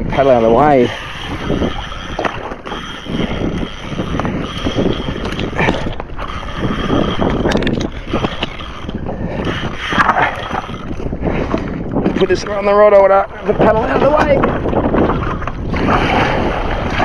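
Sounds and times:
water sloshing against kayak hull: 0:00.0 - 0:17.0
wind buffeting microphone: 0:00.0 - 0:17.0
sharp clicks: 0:00.9 - 0:11.7.

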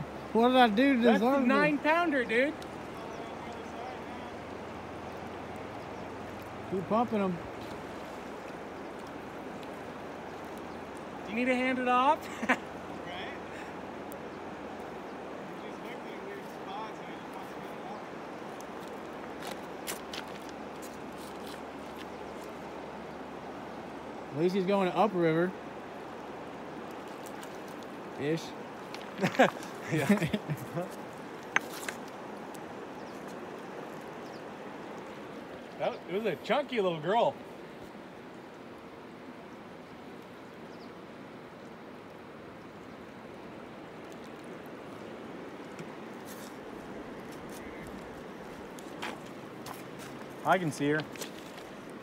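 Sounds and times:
river water rushing over rocks: 0:00.0 - 0:52.0.

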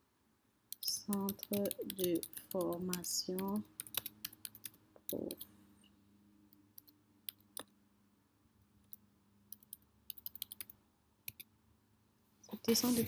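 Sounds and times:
computer keyboard typing: 0:00.7 - 0:05.5, 0:06.8 - 0:07.7, 0:08.9 - 0:11.5.

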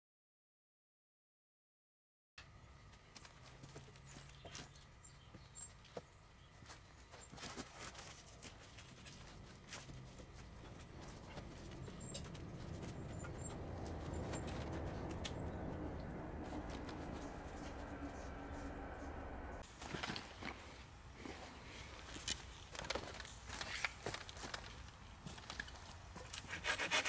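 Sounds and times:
low rumble: 0:10.5 - 0:19.6.

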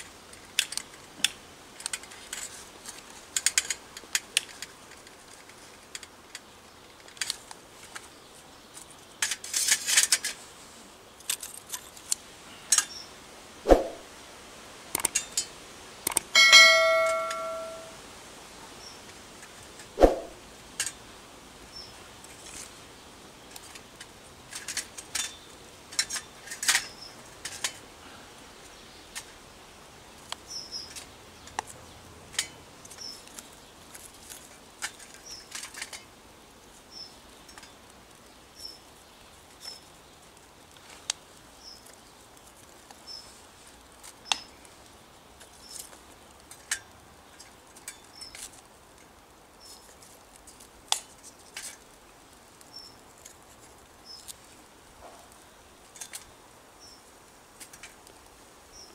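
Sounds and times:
twig fire crackling and popping: 0:00.0 - 0:13.0, 0:13.6 - 0:16.4, 0:18.2 - 0:58.9.

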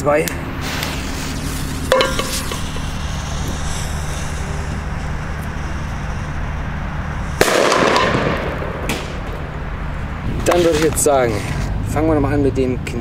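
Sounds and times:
fuse hissing: 0:00.3 - 0:07.7
firecracker bang in a metal pot: 0:01.4 - 0:03.9, 0:07.4 - 0:09.4.

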